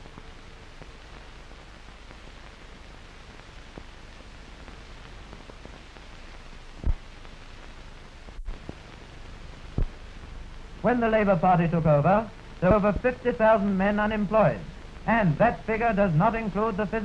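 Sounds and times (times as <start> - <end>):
film soundtrack hiss: 0.0 - 17.0
narration: 10.8 - 17.0.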